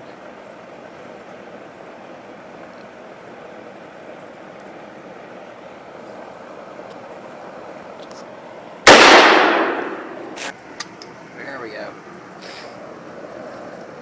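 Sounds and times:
handgun shot with echo: 0:08.9 - 0:10.4.

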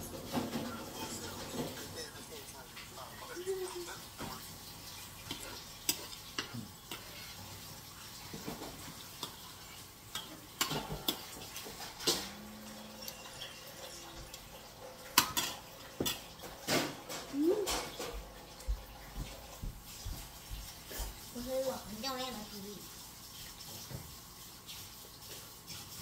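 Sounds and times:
cutlery scraping a plate: 0:05.2 - 0:18.2.

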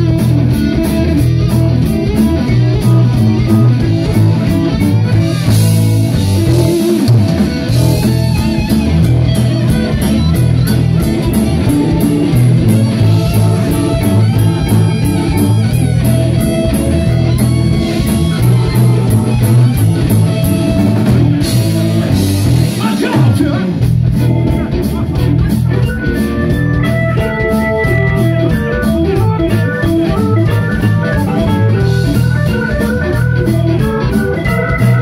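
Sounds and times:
bass guitar: 0:00.0 - 0:35.0
drum kit: 0:00.0 - 0:35.0
electric guitar: 0:00.0 - 0:35.0.

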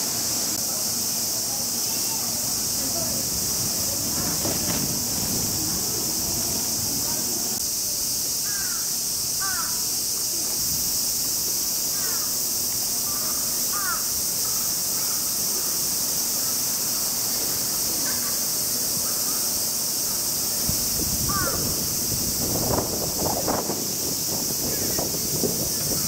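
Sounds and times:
insect chorus drone: 0:00.0 - 0:26.0
rustling: 0:02.5 - 0:07.4.

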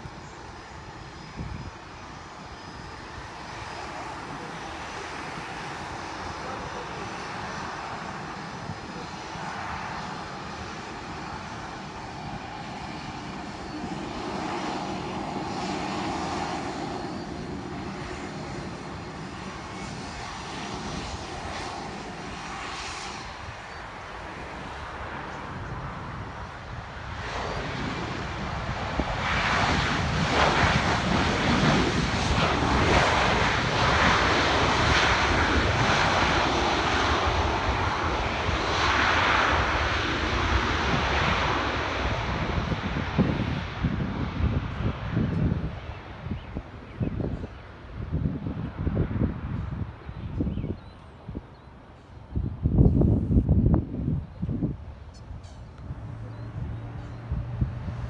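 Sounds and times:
jet engines running: 0:00.0 - 0:58.0.

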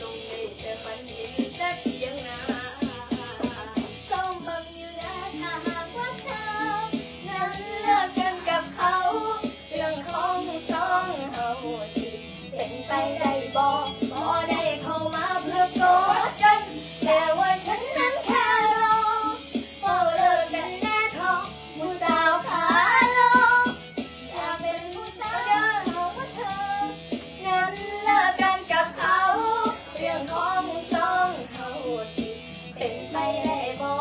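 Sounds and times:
girl singing: 0:00.0 - 0:34.0
instrumental backing music: 0:00.0 - 0:34.0.

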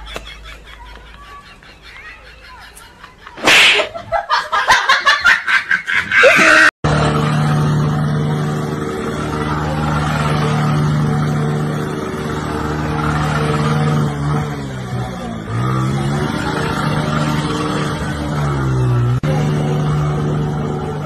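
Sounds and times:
sharp smacks: 0:03.4 - 0:04.0
motorcycle engine running: 0:06.9 - 0:21.0.

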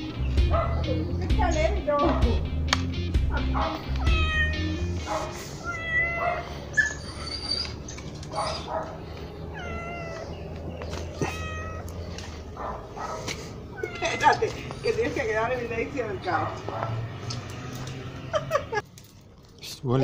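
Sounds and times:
cat meowing: 0:03.9 - 0:04.9, 0:05.6 - 0:07.5, 0:09.5 - 0:12.2, 0:13.7 - 0:14.9.

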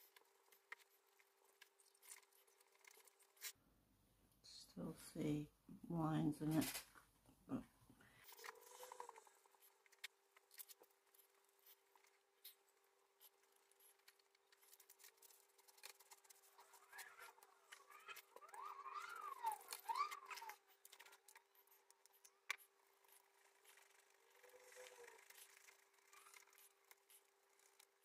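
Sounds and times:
warbling squeaks: 0:08.2 - 0:28.0.

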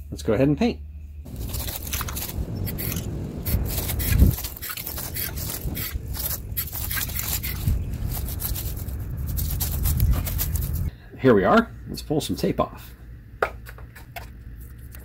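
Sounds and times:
low rumble: 0:00.8 - 0:12.1
spray paint can hissing: 0:01.3 - 0:10.9.

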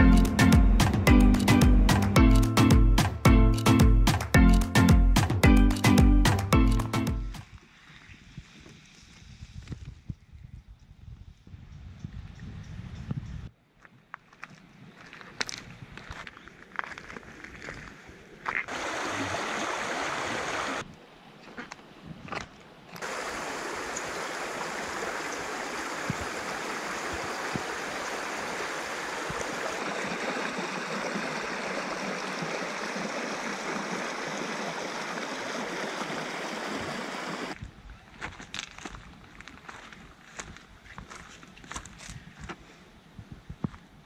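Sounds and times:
river water over stones: 0:18.6 - 0:21.6, 0:22.9 - 0:37.6.

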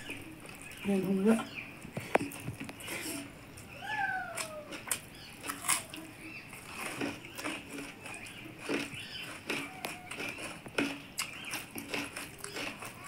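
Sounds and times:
fingers mixing rice on steel plates: 0:00.0 - 0:13.0
chewing and lip smacks: 0:04.4 - 0:13.0.

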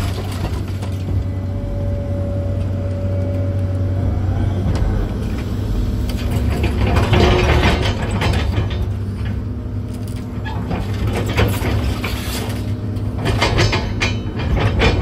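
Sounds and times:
diesel engine running: 0:00.0 - 0:15.0
rattling and clatter: 0:04.0 - 0:15.0.

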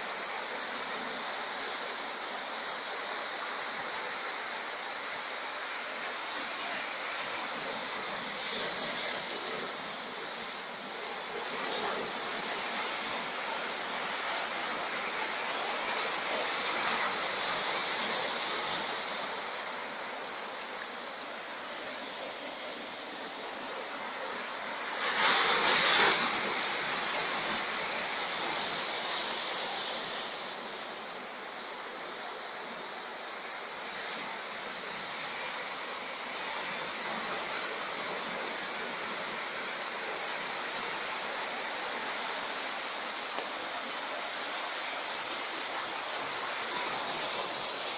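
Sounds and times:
surf breaking on rocky shore: 0:20.6 - 0:31.6
big wave crash: 0:24.8 - 0:30.2.

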